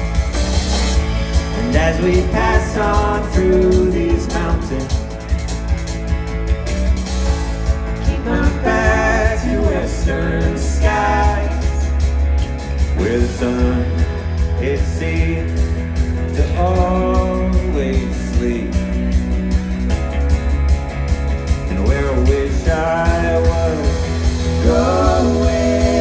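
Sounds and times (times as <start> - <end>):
live band playing: 0.0 - 26.0
person singing: 1.5 - 5.1, 8.0 - 12.0, 12.9 - 19.0, 21.7 - 26.0.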